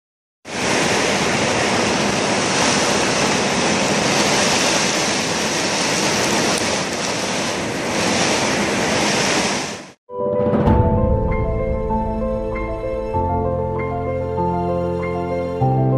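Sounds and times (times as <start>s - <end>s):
heavy rain: 0.5s - 10.0s
strong wind: 0.5s - 10.0s.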